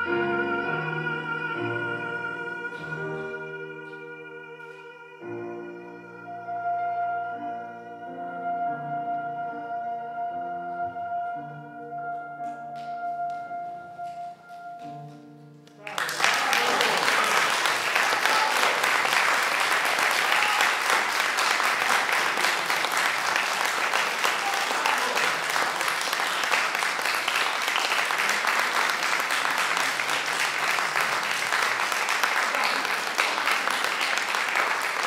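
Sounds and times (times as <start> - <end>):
audience clapping: 15.6 - 35.0.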